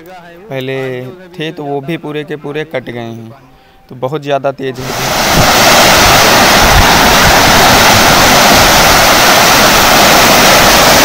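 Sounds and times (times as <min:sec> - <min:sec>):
floodwater rushing and churning: 0:04.8 - 0:11.0.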